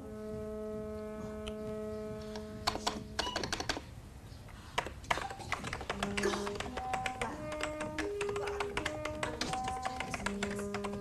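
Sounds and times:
held background music chord: 0.0s - 3.2s
typing on computer keyboard: 2.6s - 3.9s, 4.8s - 11.0s.

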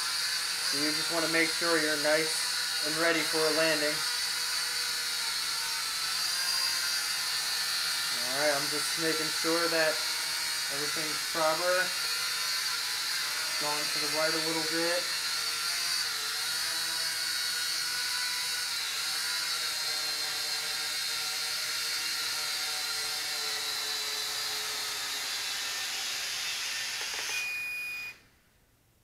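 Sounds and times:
short beep: 27.3s - 28.2s.

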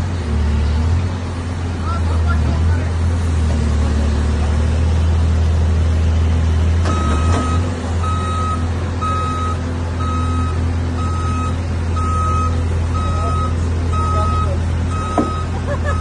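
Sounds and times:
diesel engine running: 0.0s - 16.0s
reversing alarm beeping: 6.9s - 16.0s.

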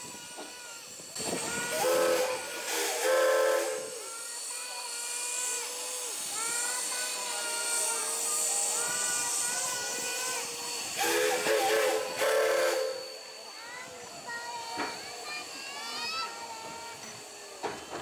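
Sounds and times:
hiss of steam: 0.0s - 18.0s
steam whistle blasts: 1.6s - 4.1s, 11.0s - 13.4s.

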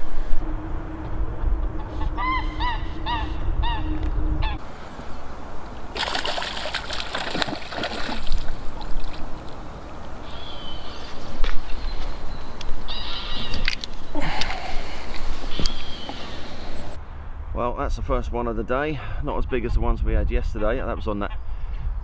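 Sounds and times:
fish thrashing and splashing: 5.9s - 10.2s.

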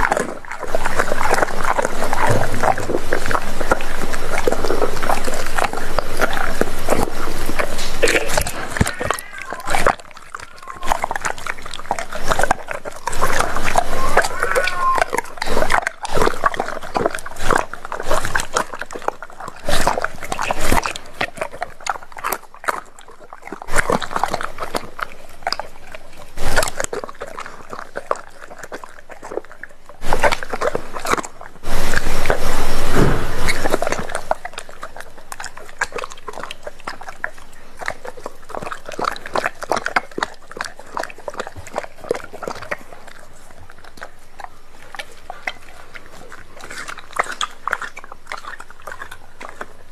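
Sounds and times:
dog chewing and licking: 0.0s - 49.9s.

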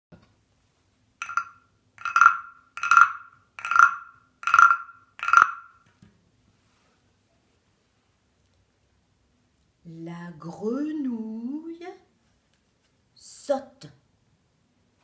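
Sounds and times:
frog guiro rasping croaks: 1.2s - 5.8s.

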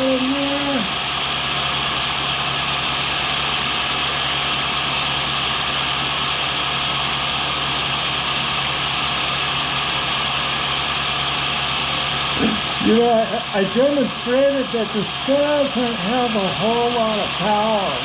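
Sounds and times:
grinder motor hum: 0.0s - 18.0s
grinding wheel hiss: 0.0s - 18.0s.

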